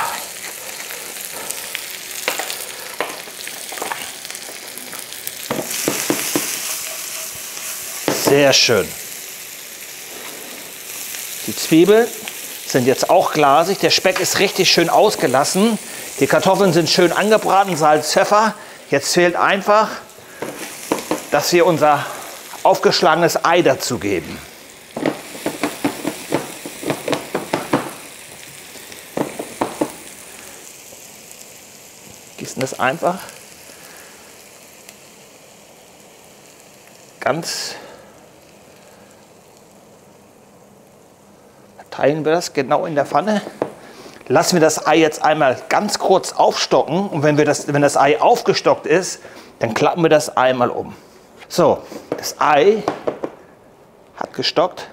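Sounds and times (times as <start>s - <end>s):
potatoes sizzling in a frying pan: 0.0s - 53.6s
utensil knocking against pan: 5.5s - 6.7s, 20.4s - 21.3s, 25.0s - 28.0s, 29.2s - 30.0s.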